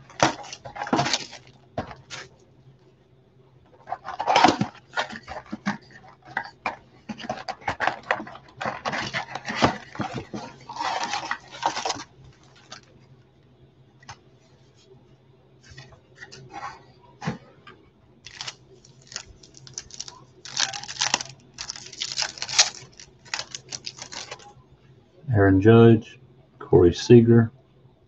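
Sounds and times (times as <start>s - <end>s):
cardboard and wrapper rustling: 0.0s - 2.3s, 3.8s - 12.9s, 18.3s - 24.5s
wrapper crinkling and tearing: 0.0s - 2.3s, 3.9s - 5.8s, 7.4s - 12.8s, 18.3s - 24.5s.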